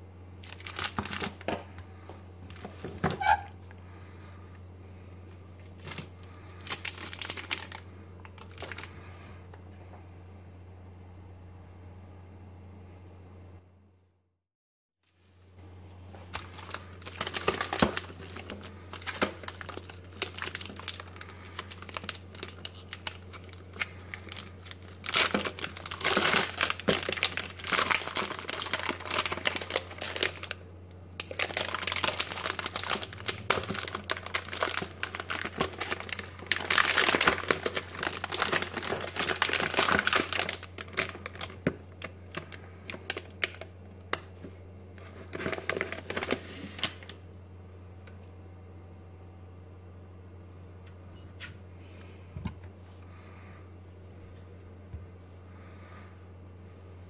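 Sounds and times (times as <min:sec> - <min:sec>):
wrapper foil crinkling and tearing: 0:00.4 - 0:01.8, 0:02.5 - 0:03.5, 0:05.6 - 0:09.4, 0:16.3 - 0:47.2
wrapper rustling: 0:00.4 - 0:04.2, 0:05.3 - 0:09.4, 0:16.1 - 0:30.6, 0:31.2 - 0:47.2.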